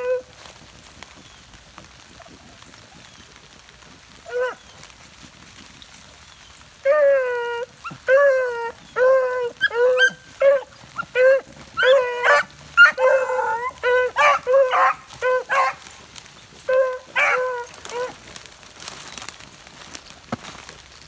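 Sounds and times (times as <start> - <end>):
hounds baying: 6.8 - 18.4.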